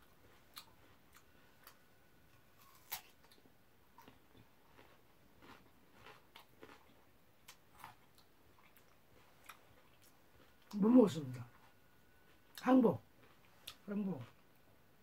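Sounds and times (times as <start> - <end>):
mouth clicks and chewing: 4.0 - 10.8.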